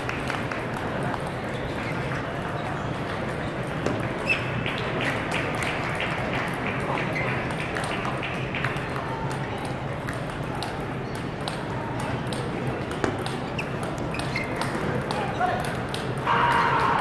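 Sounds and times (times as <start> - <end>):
table tennis balls clicking: 0.0 - 16.7
murmur of voices: 0.0 - 17.0.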